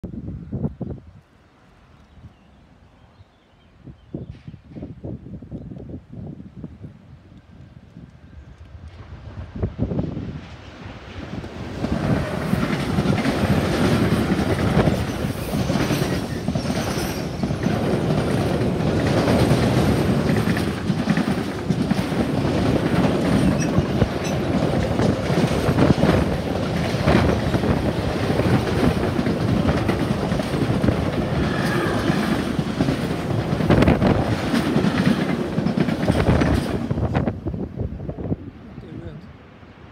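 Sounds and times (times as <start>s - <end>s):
freight train rumbling past: 6.5s - 39.9s
wheels clacking over rail joints: 11.7s - 37.4s.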